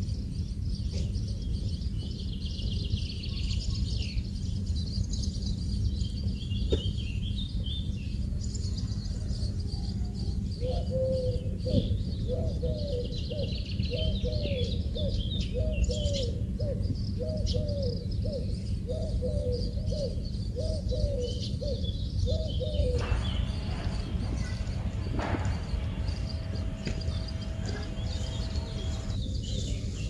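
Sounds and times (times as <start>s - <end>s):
small birds chirping: 0.0s - 30.0s
dove cooing: 10.6s - 29.2s
low background rumble: 21.8s - 30.0s.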